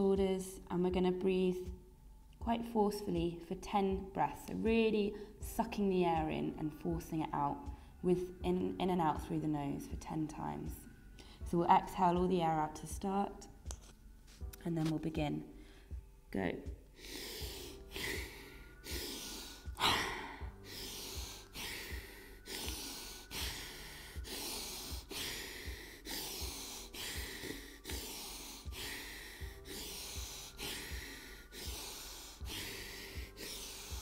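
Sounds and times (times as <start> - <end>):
woman breathing forcefully through nose: 16.9 - 34.0.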